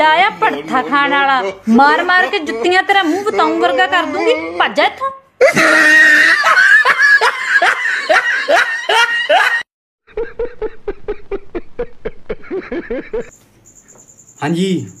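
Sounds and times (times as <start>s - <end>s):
man laughing: 0.4s - 4.4s, 5.4s - 13.3s
loud laughter: 5.4s - 13.3s.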